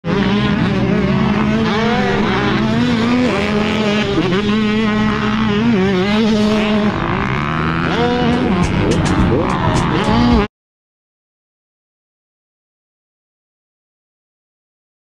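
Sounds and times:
dirt bike engine revving: 0:00.0 - 0:10.5.

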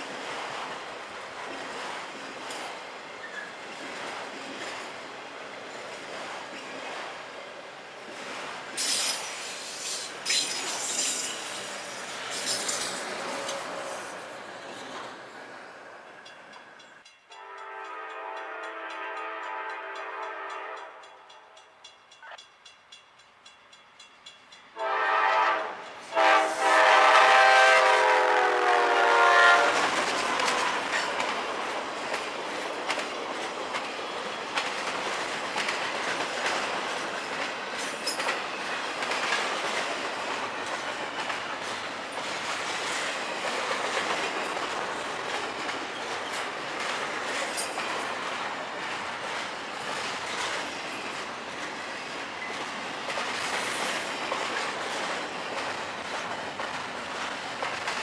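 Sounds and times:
freight cars rolling on rails: 0:00.0 - 0:20.7, 0:29.2 - 0:58.0
steel wheels clacking over rail joints: 0:08.2 - 0:13.8, 0:29.8 - 0:58.0
diesel locomotive horn blasts: 0:13.2 - 0:14.0, 0:17.3 - 0:21.3, 0:24.8 - 0:29.9.

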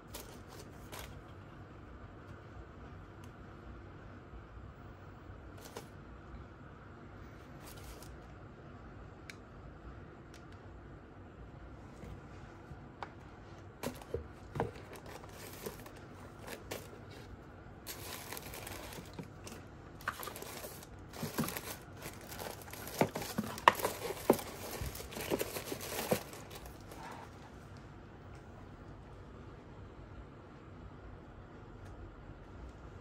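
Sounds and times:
tissue paper rustling and crinkling: 0:07.5 - 0:08.1, 0:13.8 - 0:27.3.

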